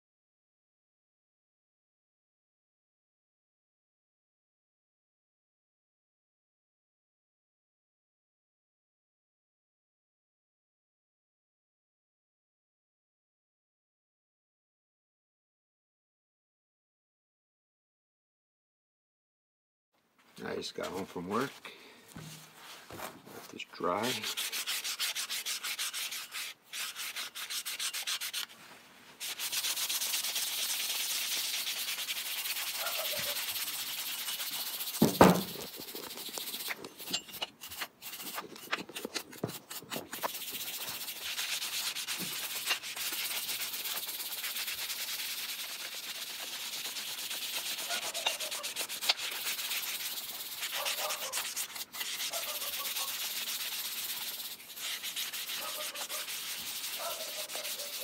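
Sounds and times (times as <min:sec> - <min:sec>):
brush scrubbing metal: 0:20.7 - 0:21.6, 0:23.4 - 0:58.0
single knock: 0:35.0 - 0:35.6.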